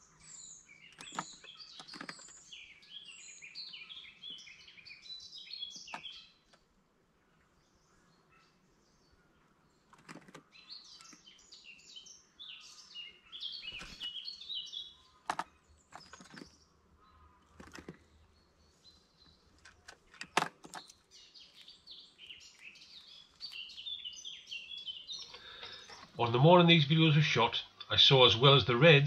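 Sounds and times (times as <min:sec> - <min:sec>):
songbirds chirping: 0:00.0 - 0:29.0.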